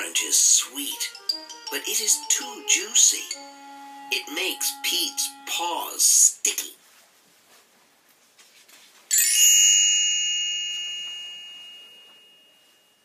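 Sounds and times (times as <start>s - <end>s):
bright bell chime: 9.1s - 13.0s.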